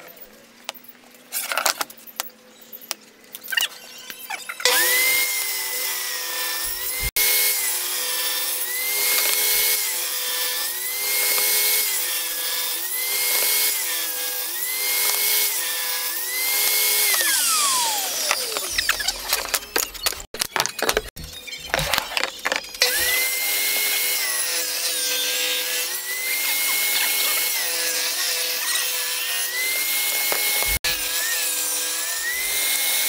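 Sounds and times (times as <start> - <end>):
table saw cutting plywood: 3.6 - 33.0
saw blade spinning down: 4.7 - 20.2, 22.4 - 33.0
wood pieces knocking: 18.2 - 21.1.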